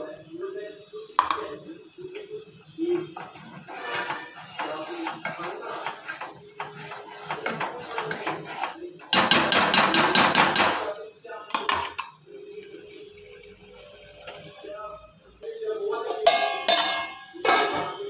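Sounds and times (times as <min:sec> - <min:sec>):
metal ladle scraping a pot: 0:03.0 - 0:09.6
metal clatter: 0:03.1 - 0:09.4.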